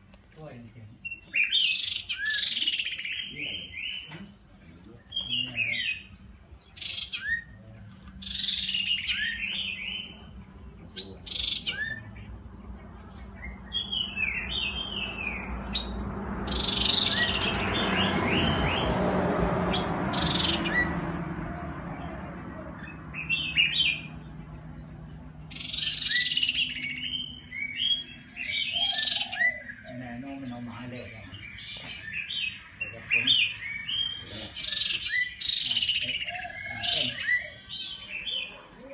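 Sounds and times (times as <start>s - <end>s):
broad rushing noise: 7.7s - 29.3s.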